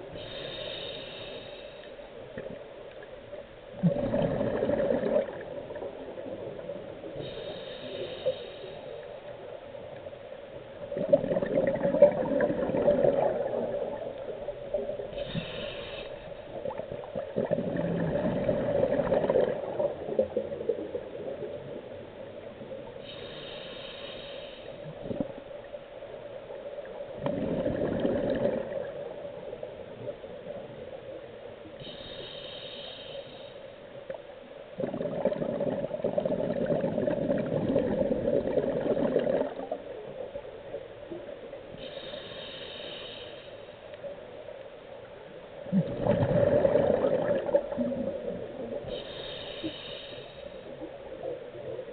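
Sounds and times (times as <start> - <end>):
diver inhaling through regulator: 0.0 - 2.0, 7.2 - 9.2, 15.1 - 16.6, 23.0 - 25.0, 31.8 - 33.8, 41.7 - 43.8, 48.8 - 50.9
exhaled bubbles rushing underwater: 3.7 - 7.3, 10.8 - 15.2, 16.5 - 22.0, 27.1 - 30.1, 34.8 - 40.3, 45.6 - 49.0.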